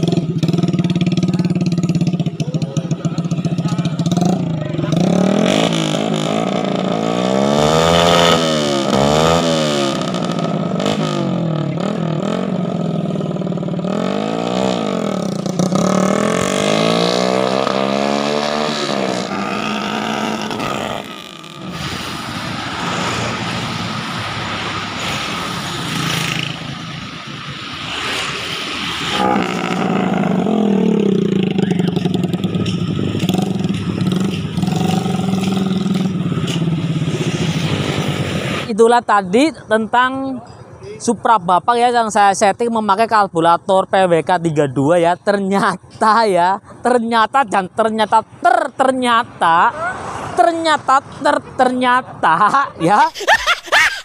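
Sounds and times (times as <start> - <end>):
motorcycle engine revving: 0.0 - 38.7.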